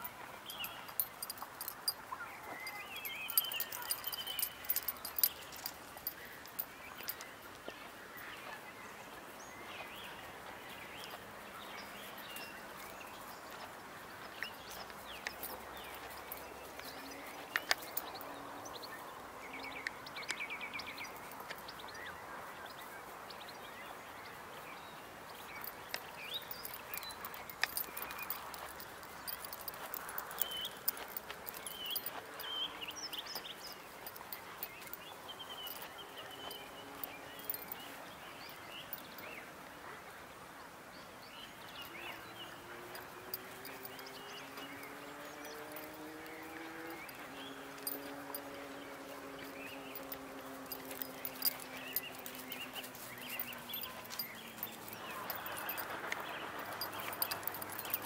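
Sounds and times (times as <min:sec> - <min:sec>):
birds chirping: 0:00.0 - 0:39.5, 0:41.0 - 0:58.0
bird trill: 0:00.5 - 0:07.2
footsteps in grass and dry leaves: 0:48.0 - 0:58.0.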